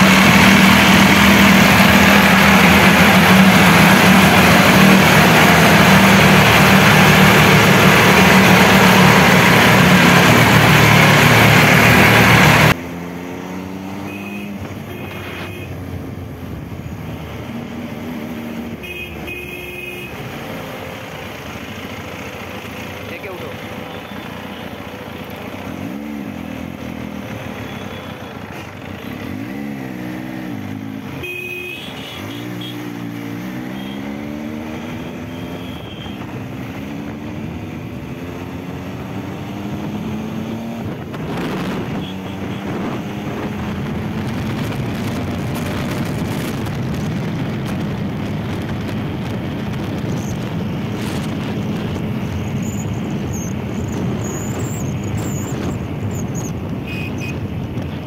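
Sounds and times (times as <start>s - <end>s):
motorcycle engine accelerating: 0.0s - 18.8s, 20.2s - 31.2s, 32.2s - 58.0s
wind rushing over microphone: 38.7s - 58.0s.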